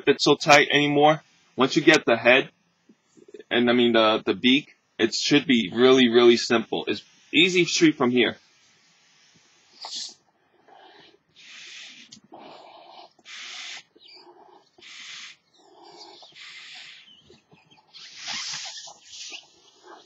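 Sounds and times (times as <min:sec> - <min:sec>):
breaths blown into balloon: 0:18.0 - 0:19.4.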